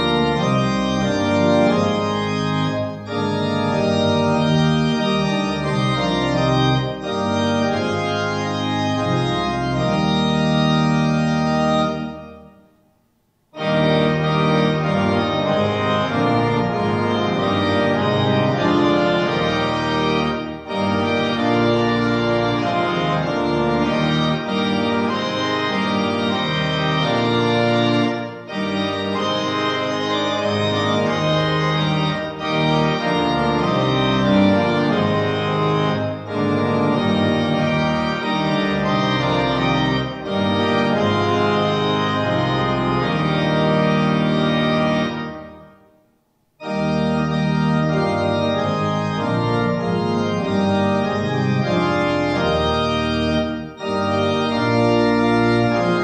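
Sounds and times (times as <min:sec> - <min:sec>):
organ sustained chords: 0:00.0 - 0:46.0, 0:46.6 - 0:56.0.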